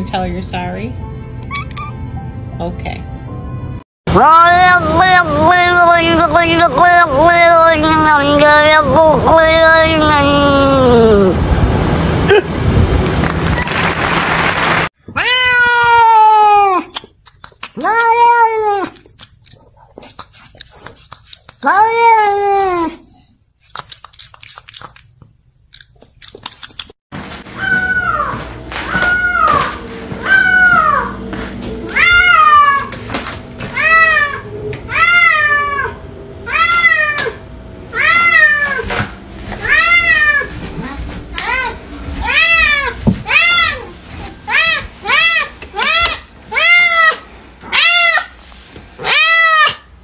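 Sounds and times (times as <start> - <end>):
cat meowing: 27.6 - 31.2, 31.9 - 33.0, 33.7 - 38.9, 39.6 - 40.6, 49.0 - 49.9.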